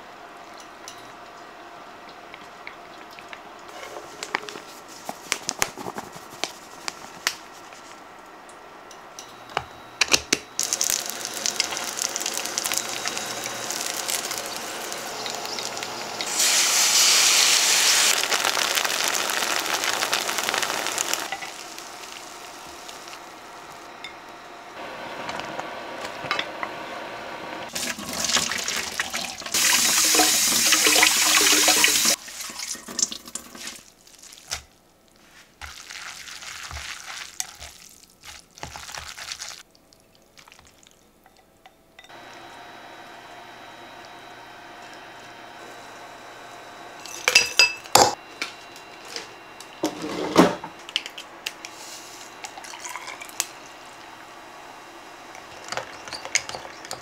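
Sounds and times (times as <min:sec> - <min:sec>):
loud hissing: 0:10.6 - 0:23.4
dumplings sizzling in a skillet: 0:10.6 - 0:23.8.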